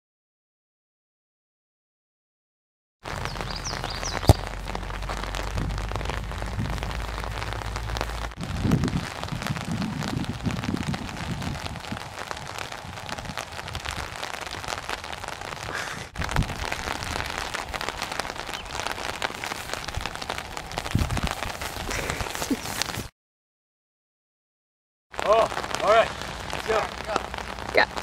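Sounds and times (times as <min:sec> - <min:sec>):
crackling microphone noise: 0:03.0 - 0:23.1, 0:25.1 - 0:28.0
low rumbles: 0:03.1 - 0:22.7.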